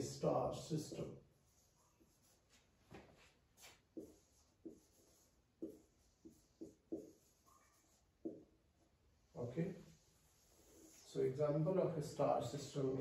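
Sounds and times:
marker writing on whiteboard: 0.6 - 9.0, 9.9 - 11.2.

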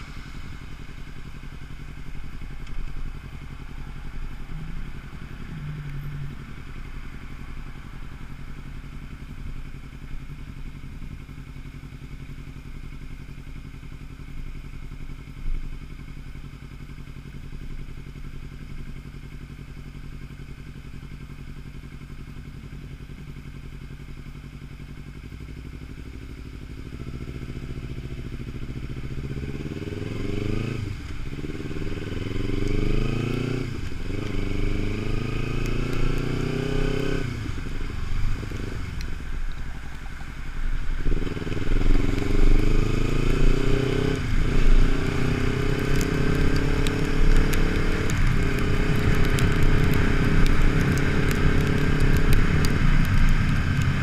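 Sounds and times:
motorcycle engine running: 0.0 - 54.0
motorcycle shifting up gears: 28.3 - 54.0.

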